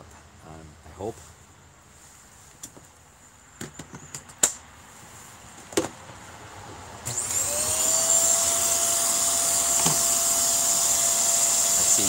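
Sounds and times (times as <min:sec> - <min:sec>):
vacuum motor whining: 0:07.1 - 0:12.0.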